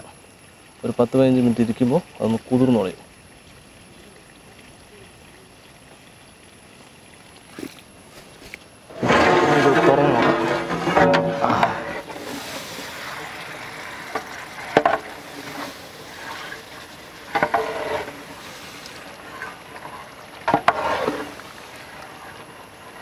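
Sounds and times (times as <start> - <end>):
food sizzling and simmering: 0.0 - 23.0
ladle stirring in metal pot: 8.9 - 23.0.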